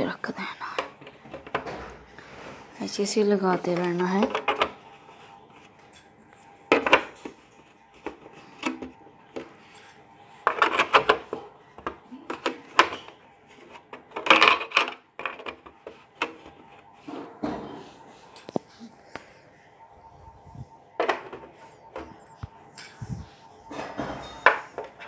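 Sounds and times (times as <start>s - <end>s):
plastic knocks and rattles: 1.0s - 2.0s.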